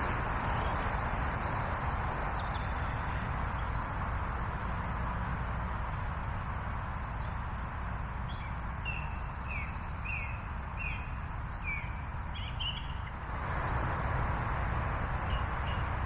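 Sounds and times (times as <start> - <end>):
small bird chirping: 8.3 - 13.2.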